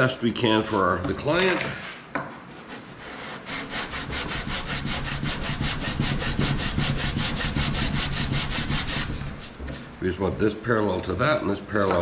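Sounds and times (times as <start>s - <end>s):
sanding block rubbing wood: 2.5s - 9.9s.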